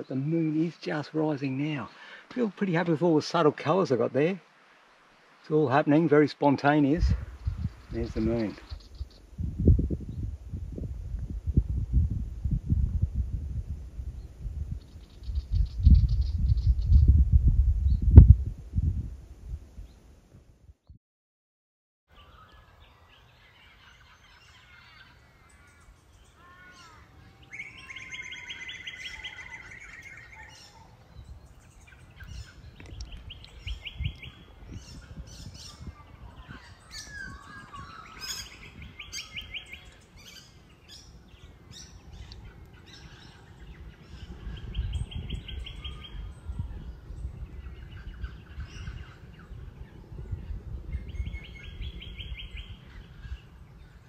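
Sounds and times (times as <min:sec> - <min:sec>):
birds chirping: 0:00.0 - 0:04.3, 0:06.6 - 0:10.3, 0:22.1 - 0:54.0.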